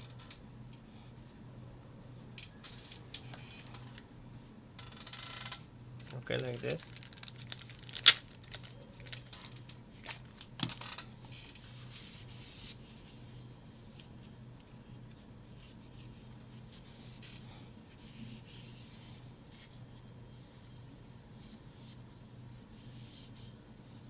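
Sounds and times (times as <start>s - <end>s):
cloth rubbing laptop: 11.2s - 14.4s, 15.4s - 24.0s.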